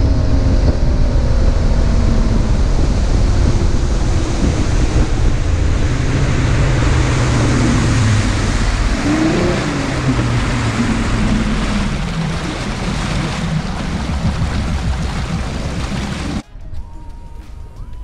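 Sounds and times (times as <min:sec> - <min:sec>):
outboard motor running: 0:00.0 - 0:16.4
wind and water rushing: 0:00.0 - 0:16.4.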